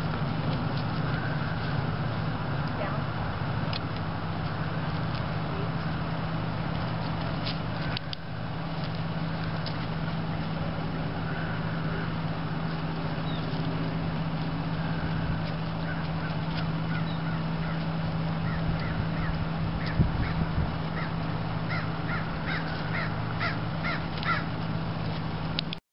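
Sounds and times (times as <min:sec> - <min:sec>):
constant low hum: 0:00.0 - 0:25.8
short bird calls: 0:15.8 - 0:24.5.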